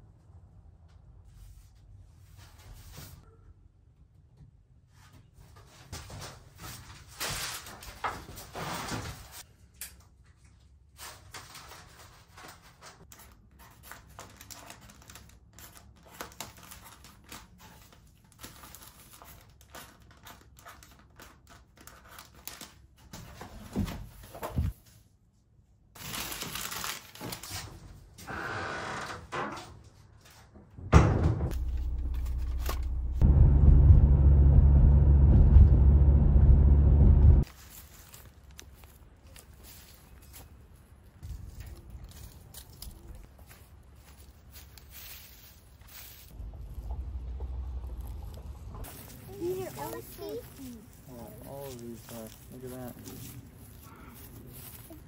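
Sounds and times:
paper bags rustling: 0:11.2 - 0:23.2, 0:26.0 - 0:27.9, 0:37.4 - 0:46.8, 0:47.7 - 0:55.0
low car rumble: 0:31.4 - 0:37.5, 0:46.4 - 0:49.8.

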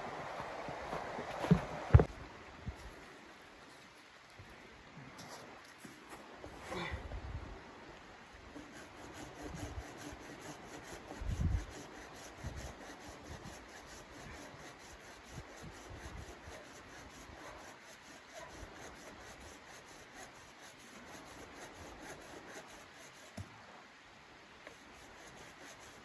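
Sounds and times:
hand saw cutting wood: 0:08.6 - 0:23.4, 0:24.7 - 0:26.0.

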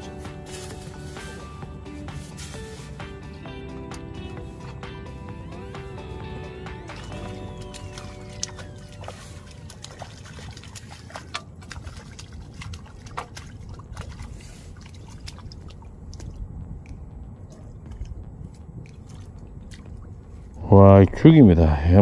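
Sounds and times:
small splashes: 0:00.0 - 0:20.6
water trickling and dripping: 0:00.0 - 0:20.6
low rumble: 0:00.0 - 0:21.5
sharp ticks: 0:16.1 - 0:20.1.

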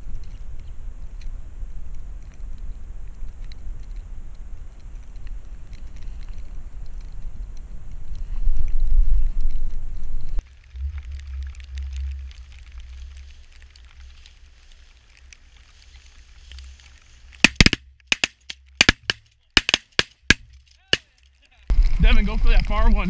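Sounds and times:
wind rumbling on microphone: 0:00.0 - 0:17.5, 0:21.7 - 0:23.0
shotgun blasts: 0:17.5 - 0:21.0.

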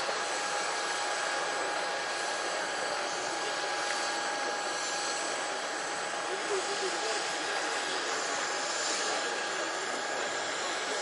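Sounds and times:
turbine engine running: 0:00.0 - 0:11.0.

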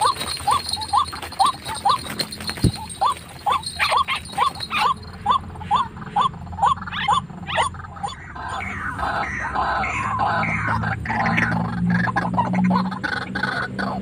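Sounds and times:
rustling and flapping: 0:00.0 - 0:05.2
waterhen calling: 0:00.0 - 0:14.0.

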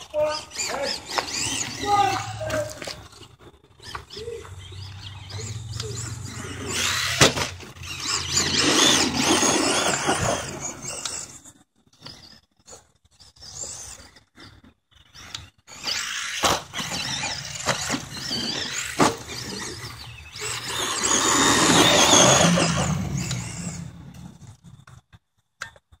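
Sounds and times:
electric motor whining: 0:00.0 - 0:12.4, 0:15.1 - 0:24.9.

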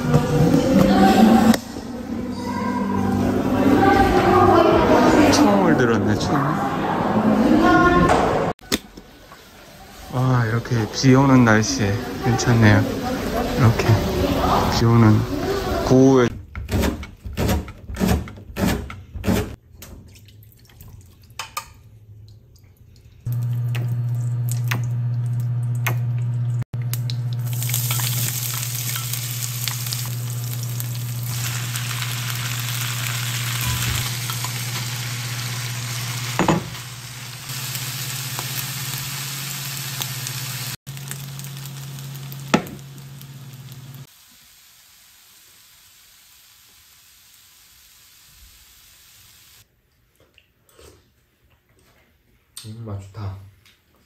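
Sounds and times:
oil sizzling in frying pan: 0:09.2 - 0:16.3, 0:26.9 - 0:49.6.

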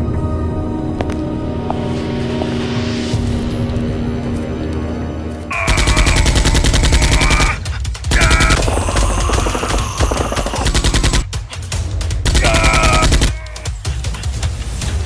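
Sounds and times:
automatic gunfire bursts: 0:05.6 - 0:11.3, 0:12.2 - 0:13.4.

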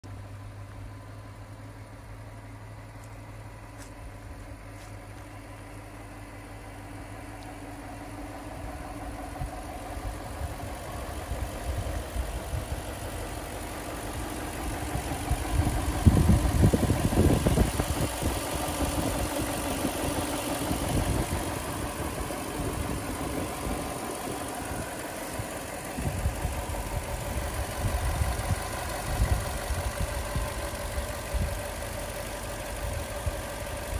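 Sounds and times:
car engine idling: 0:00.0 - 0:33.9
low rumbling: 0:02.2 - 0:33.7.

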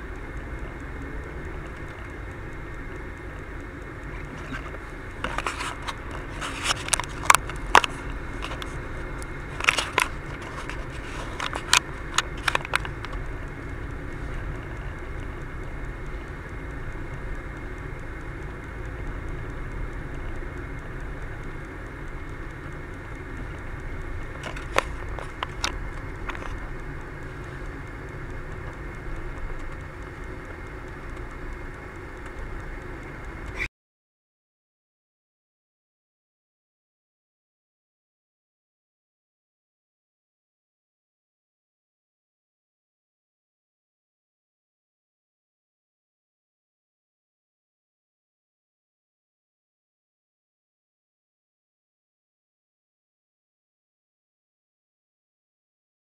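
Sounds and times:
car interior road and engine drone: 0:00.0 - 0:33.7
sharp clicks and crackles: 0:00.0 - 0:33.7.

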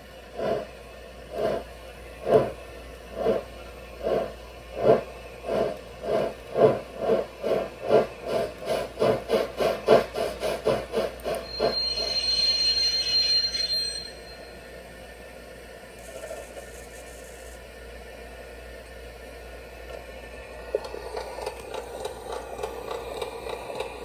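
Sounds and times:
model steam locomotive chuffing: 0:00.0 - 0:13.8, 0:20.6 - 0:24.0
steam hissing with high tone: 0:00.0 - 0:14.8.

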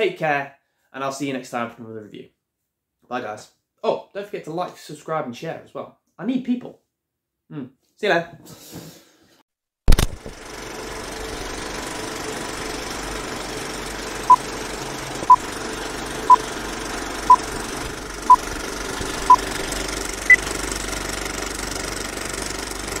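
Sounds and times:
film projector rattle and hiss: 0:09.9 - 0:23.0.

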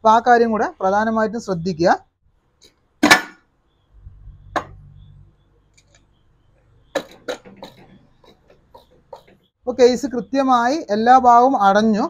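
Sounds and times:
metal knocks and clinks: 0:06.9 - 0:09.5.

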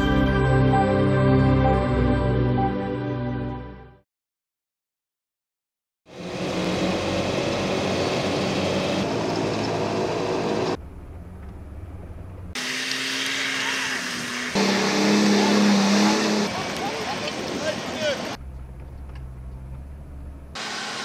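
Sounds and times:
off-road vehicle engines running: 0:06.1 - 0:21.0.

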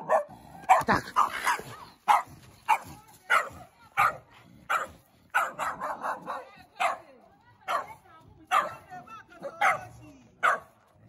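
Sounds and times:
small dog barking: 0:00.0 - 0:08.8, 0:09.5 - 0:10.8.

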